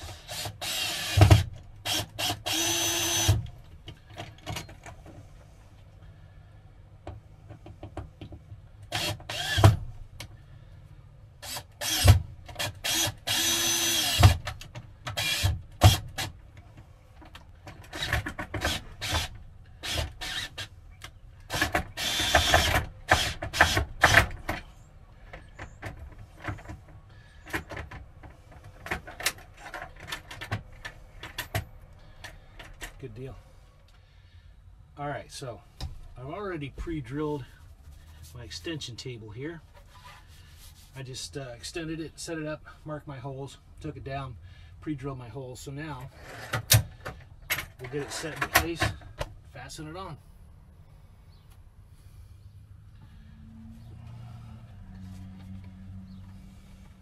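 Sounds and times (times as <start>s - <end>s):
cordless drill driving screws: 0.0s - 3.5s, 8.9s - 9.8s, 11.4s - 16.3s, 17.9s - 20.7s, 21.5s - 24.5s.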